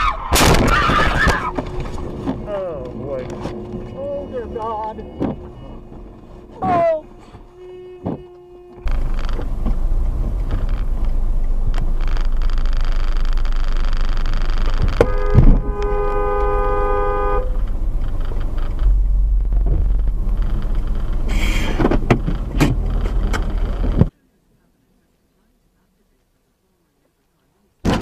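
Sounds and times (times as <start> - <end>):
car engine and road rumble: 0.0 - 28.0
car horn blaring: 1.4 - 10.0, 14.8 - 17.7.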